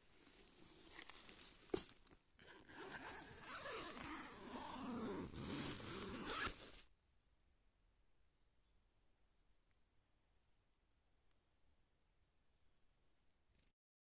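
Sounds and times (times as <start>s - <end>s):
tent zip being pulled: 2.4s - 6.9s.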